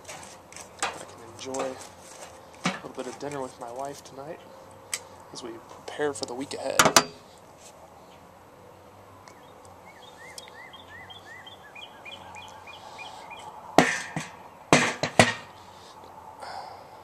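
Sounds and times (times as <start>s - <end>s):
songbird chirping: 1.0s - 14.7s
sharp knocks: 13.8s - 15.5s.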